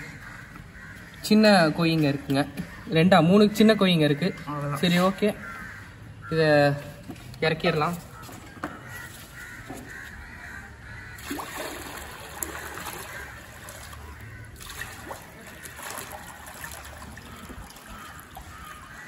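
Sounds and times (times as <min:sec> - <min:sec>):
water pouring into pool: 0:11.2 - 0:18.5.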